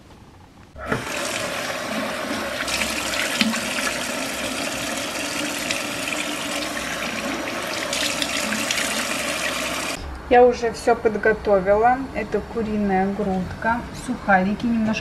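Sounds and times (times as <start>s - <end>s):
tap water running into sink: 0.8s - 10.0s
splashing from face washing: 0.9s - 10.0s.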